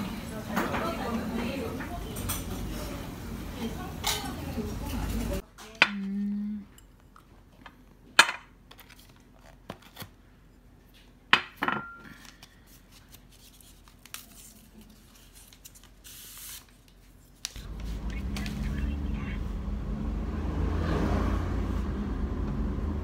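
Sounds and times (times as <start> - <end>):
tableware clinking: 11.3 - 12.2.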